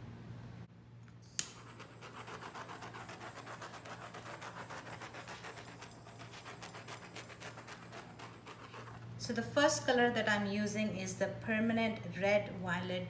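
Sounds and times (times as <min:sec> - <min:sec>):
torch clicking on: 0:01.3 - 0:01.8.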